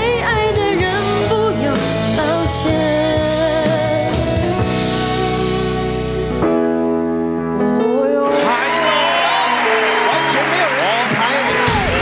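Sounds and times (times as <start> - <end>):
woman singing pop ballad: 0.0 - 6.2, 7.8 - 8.7
instrumental backing track: 0.0 - 12.0.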